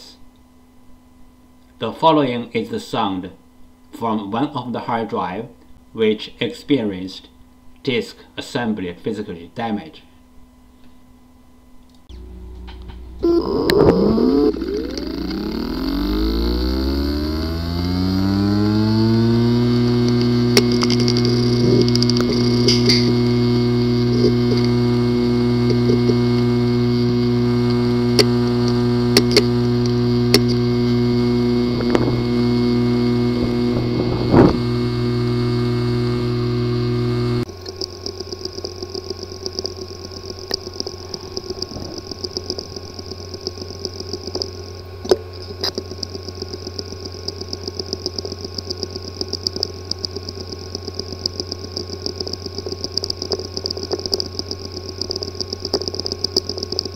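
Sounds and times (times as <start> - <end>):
hard drive buzzing hum: 0.0 - 56.9
high whine: 11.9 - 56.9
hard drive clicking: 12.0 - 56.9.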